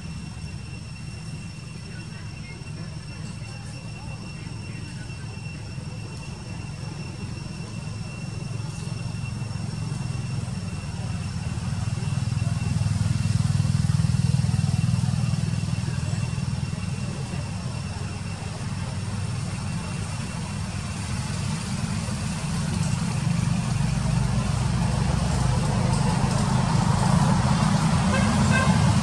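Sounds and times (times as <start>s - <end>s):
vehicle engine droning: 0.0s - 29.0s.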